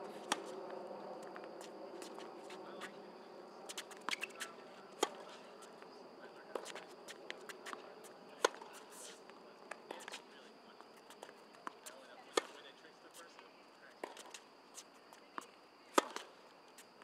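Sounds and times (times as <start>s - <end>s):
ball bounces and footsteps: 0.0s - 3.0s, 3.6s - 5.9s, 6.5s - 12.6s
racket striking tennis ball: 0.1s - 0.6s, 3.7s - 5.4s.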